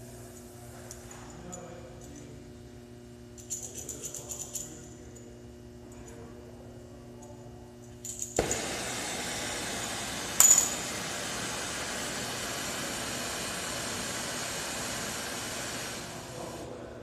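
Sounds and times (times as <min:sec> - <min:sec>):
torch lighting pop: 0:08.4 - 0:09.2
sharp loud torch pop: 0:08.4 - 0:14.4
gas torch burning with hiss: 0:08.4 - 0:16.9.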